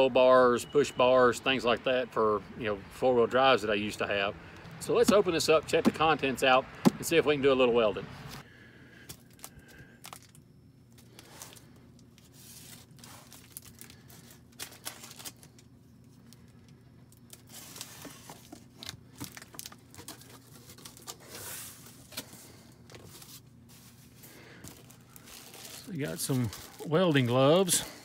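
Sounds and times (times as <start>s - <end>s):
packing tape tearing: 24.6s - 27.3s.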